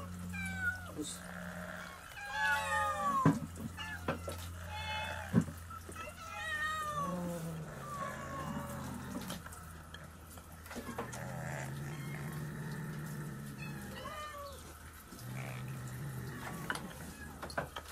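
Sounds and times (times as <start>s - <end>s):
cat growling: 0.0s - 9.6s, 10.7s - 17.5s
cat meowing: 1.8s - 9.2s, 13.5s - 14.8s.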